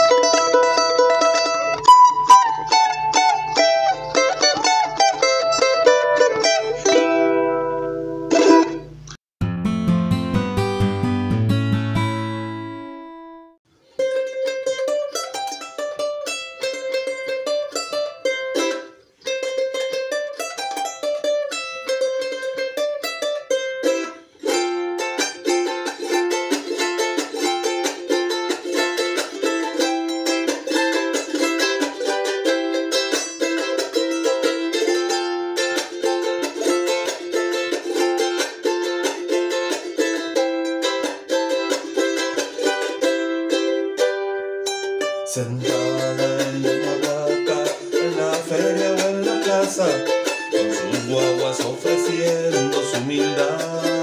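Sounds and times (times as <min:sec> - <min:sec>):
charango picked melody: 0:00.0 - 0:54.0.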